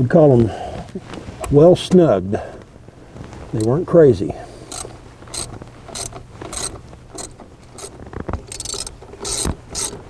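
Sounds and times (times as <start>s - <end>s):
ratchet wrench clicking: 4.7s - 10.0s.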